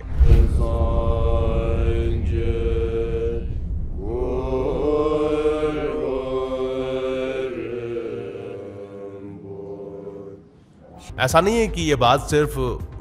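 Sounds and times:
monks chanting together: 0.0s - 10.9s.

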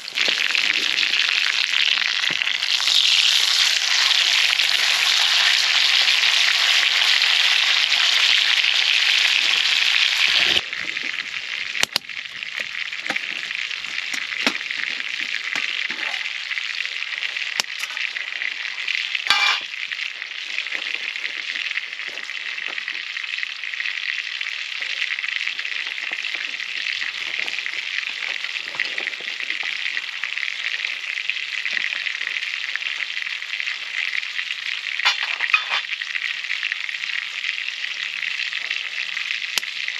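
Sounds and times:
pops and crackles: 0.0s - 4.1s, 10.4s - 23.3s, 24.6s - 33.2s, 34.9s - 36.1s, 38.4s - 39.9s
food sizzling in a pan: 0.0s - 39.9s.

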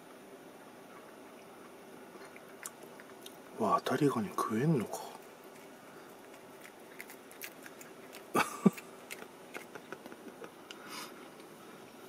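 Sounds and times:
cat chewing with crisp crunches: 4.4s - 11.6s.

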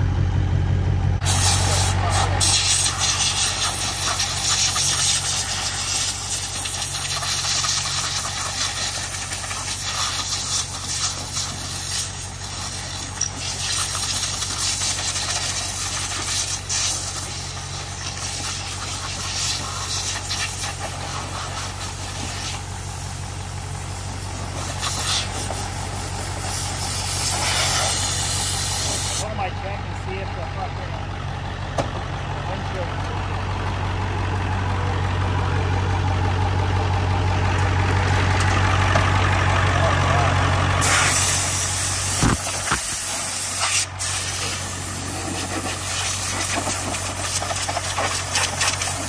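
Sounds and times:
engine idling: 0.0s - 49.0s
water spraying from a hose: 1.2s - 29.2s, 40.8s - 49.0s.

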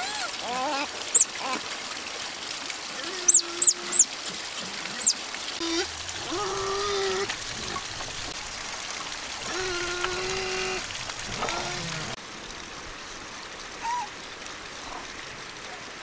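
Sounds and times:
stream and waterfall trickling: 0.0s - 16.0s
drawn-out voice-like calls: 2.9s - 4.2s, 4.8s - 8.1s, 9.4s - 12.2s.

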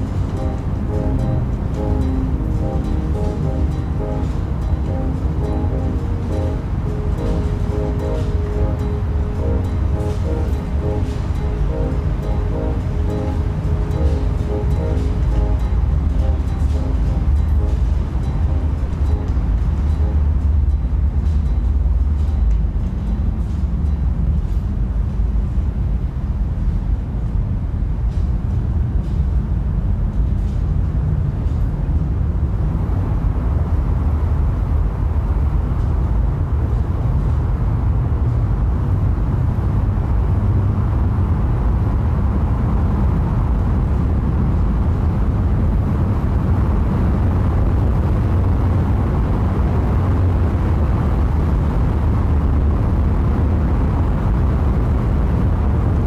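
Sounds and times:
loud low rumble: 0.0s - 56.0s.

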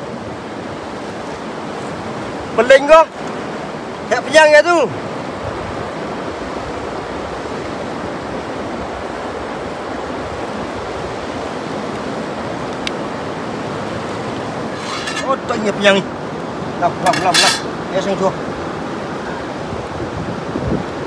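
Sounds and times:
river water flowing over rocks: 0.0s - 21.0s
small click: 12.7s - 13.0s.

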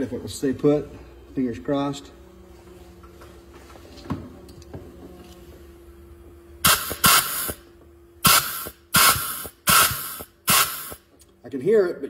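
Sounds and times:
air leaking: 6.6s - 7.6s, 8.2s - 11.0s
compressed air blasts from nozzle: 6.6s - 11.1s.

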